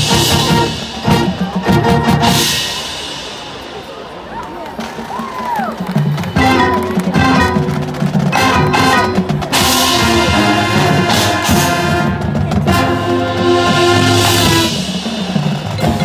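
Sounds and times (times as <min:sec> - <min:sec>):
marching band brass chords: 0:00.0 - 0:04.2, 0:05.8 - 0:16.0
drums and percussion: 0:00.0 - 0:16.0.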